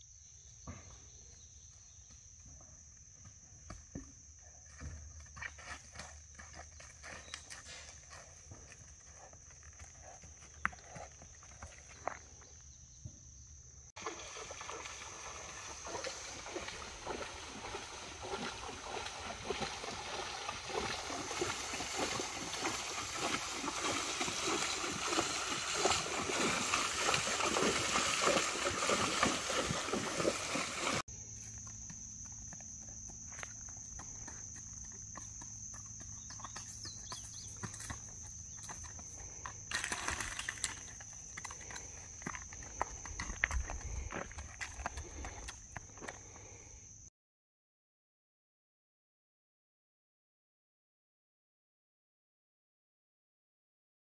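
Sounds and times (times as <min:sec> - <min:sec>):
high insect drone: 0:00.0 - 0:47.1
hoof steps on dirt: 0:01.6 - 0:13.0, 0:15.8 - 0:46.4
hooves splashing through water: 0:14.0 - 0:31.0, 0:35.2 - 0:46.0.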